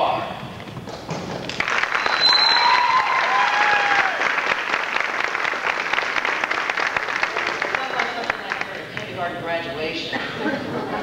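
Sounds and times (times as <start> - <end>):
audience clapping and cheering: 1.3 - 9.2
audience whoops: 1.9 - 4.6.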